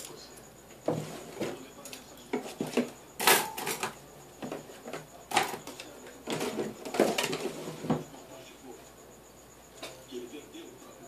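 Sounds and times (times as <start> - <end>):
household items knocking and clattering: 2.3 - 8.1.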